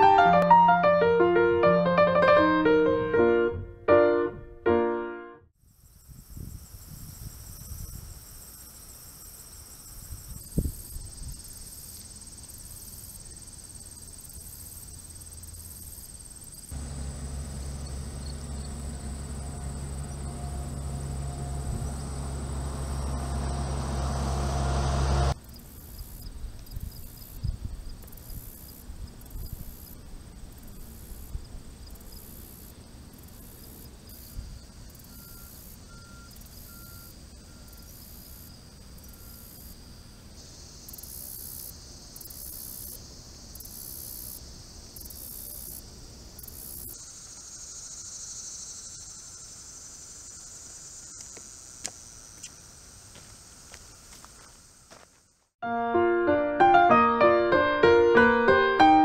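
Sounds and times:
crickets and insects trilling: 0:05.6 - 0:55.5
low rumble: 0:16.8 - 0:25.4.

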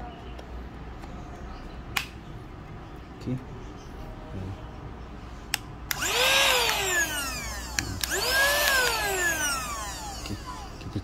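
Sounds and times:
mini vacuum motor whining: 0:05.9 - 0:11.0.

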